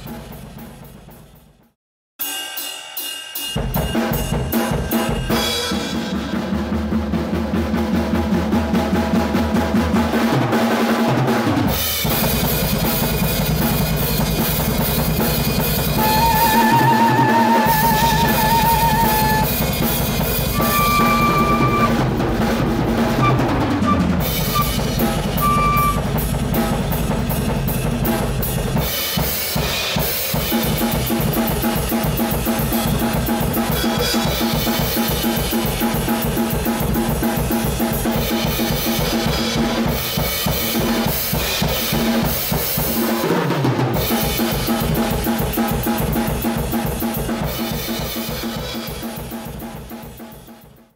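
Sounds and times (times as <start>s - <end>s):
drum kit beat: 0.0s - 50.9s.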